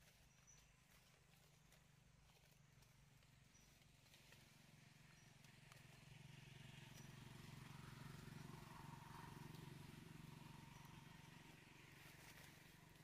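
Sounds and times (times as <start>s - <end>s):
distant motor vehicle engine drone: 3.0s - 13.0s.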